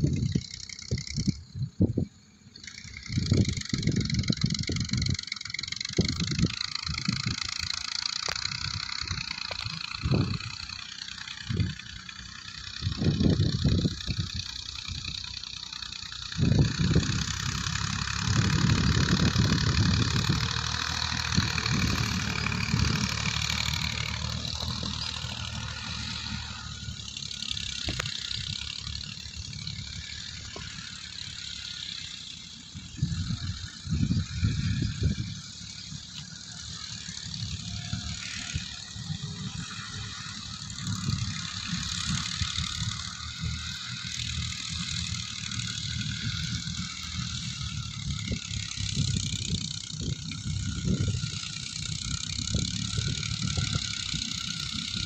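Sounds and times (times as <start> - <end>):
wind buffeting microphone: 0.0 - 2.2, 3.0 - 7.8, 8.4 - 10.7, 11.4 - 12.0, 12.6 - 15.3, 16.2 - 30.8, 32.7 - 36.0, 45.6 - 55.0
tractor diesel engines running: 0.0 - 55.0.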